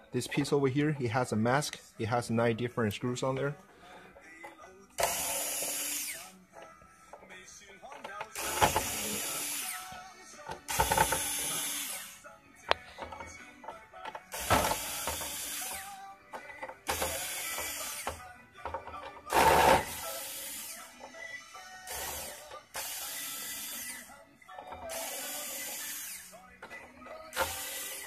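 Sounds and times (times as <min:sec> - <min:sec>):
powered screwdriver running: 0:05.0 - 0:06.3, 0:08.2 - 0:09.9, 0:10.6 - 0:12.2, 0:14.3 - 0:16.0, 0:16.9 - 0:18.2, 0:19.3 - 0:20.9, 0:21.9 - 0:24.1, 0:24.7 - 0:26.4, 0:27.2 - 0:28.0.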